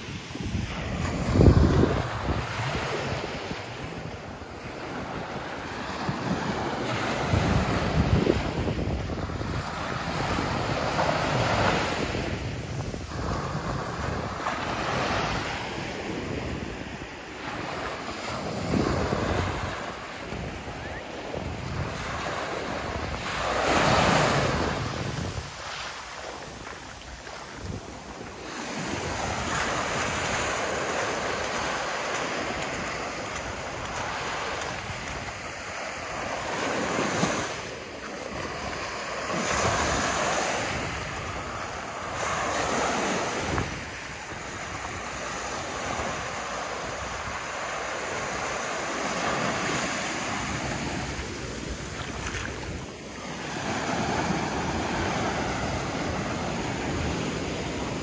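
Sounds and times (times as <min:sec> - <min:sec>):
waves breaking on beach: 0:00.0 - 0:58.0
wind buffeting microphone: 0:00.0 - 0:58.0.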